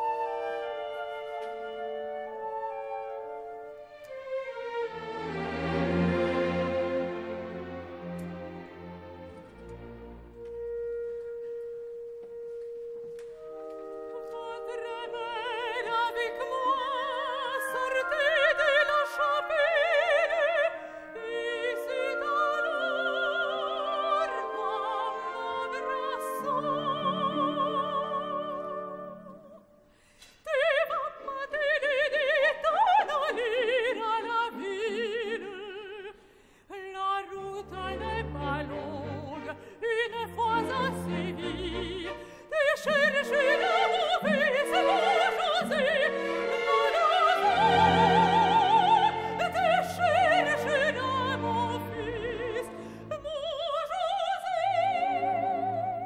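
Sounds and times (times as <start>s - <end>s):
orchestral accompaniment: 0.0s - 29.7s, 37.3s - 56.0s
soprano singing with vibrato: 13.4s - 29.8s, 30.4s - 56.0s.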